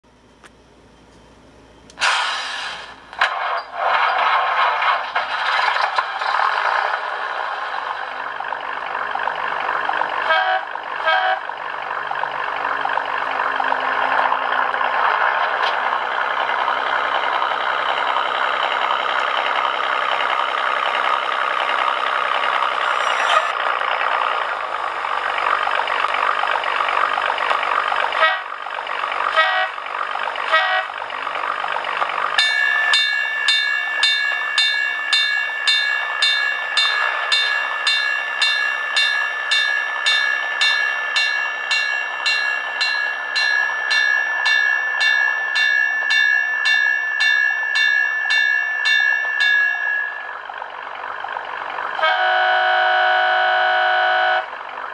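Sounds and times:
model train engine sound: 0:00.2 - 0:54.6
bell ringing: 0:32.4 - 0:50.4.

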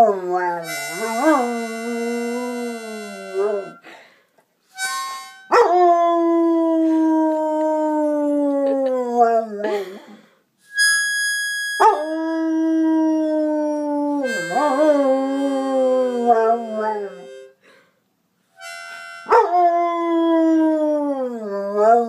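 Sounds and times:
harmonica note: 0:00.6 - 0:04.0, 0:04.7 - 0:05.6, 0:10.6 - 0:11.9, 0:14.2 - 0:17.8, 0:18.5 - 0:19.6.

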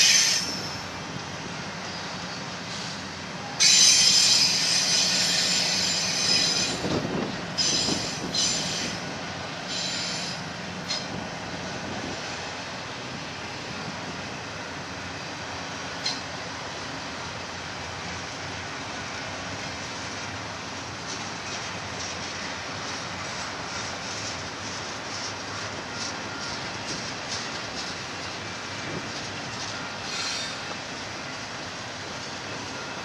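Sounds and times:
train wheels squealing: 0:00.0 - 0:01.0, 0:01.8 - 0:11.2, 0:25.2 - 0:31.4
wheels rumbling on rail: 0:00.0 - 0:33.0.

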